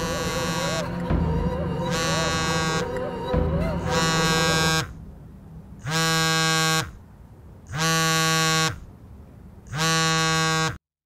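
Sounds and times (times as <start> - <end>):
mobile phone vibrating on ground: 0.0 - 1.0, 3.9 - 4.9, 9.7 - 10.8.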